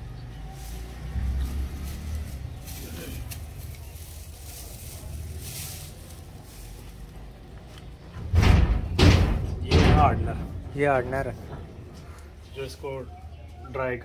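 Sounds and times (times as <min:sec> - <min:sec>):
plastic bag rustling: 0:00.5 - 0:07.4.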